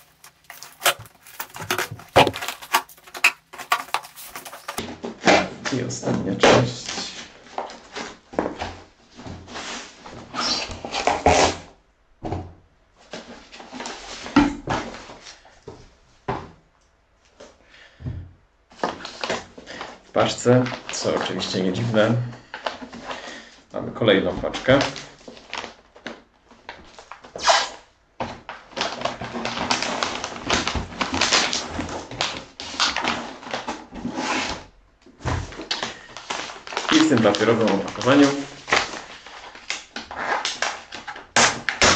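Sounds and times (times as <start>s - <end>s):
cardboard box being torn open: 0.0s - 4.8s
paper and cardboard rustling: 0.0s - 4.9s, 35.2s - 41.9s.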